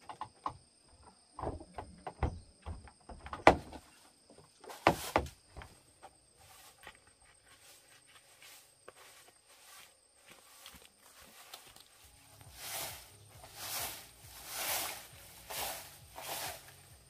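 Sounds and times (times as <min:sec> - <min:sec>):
high buzz of insects: 0:00.1 - 0:17.0
knocks and thuds: 0:01.3 - 0:03.9, 0:04.7 - 0:05.7
short rustle: 0:06.4 - 0:16.9.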